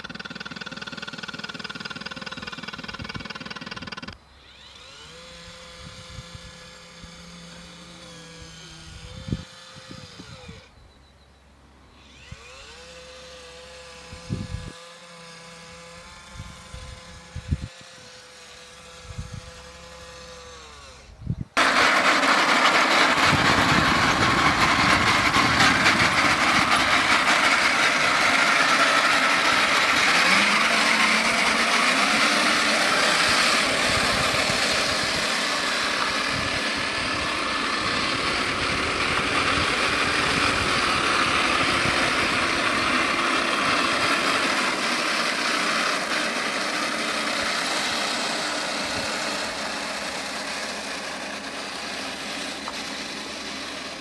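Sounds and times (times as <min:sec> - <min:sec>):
fine rapid clicking: 0:00.0 - 0:04.2
model tank tracks running: 0:21.6 - 0:54.0.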